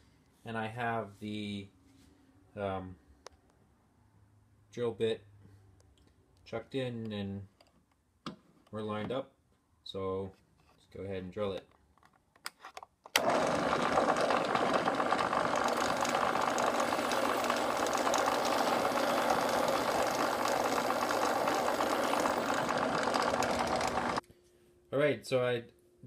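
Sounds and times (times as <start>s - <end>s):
drill press drilling into metal: 13.2s - 24.2s.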